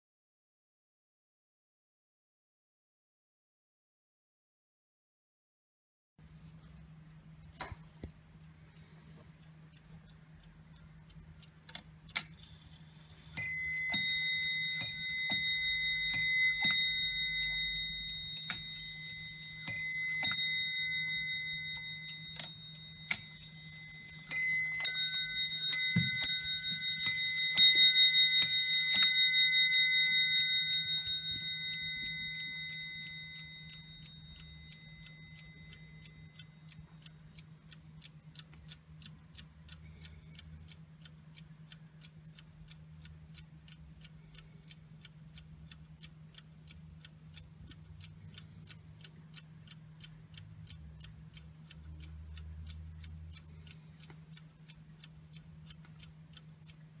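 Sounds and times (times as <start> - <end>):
clock ticking: 6.6 - 57.0
clock striking bell: 13.4 - 35.6.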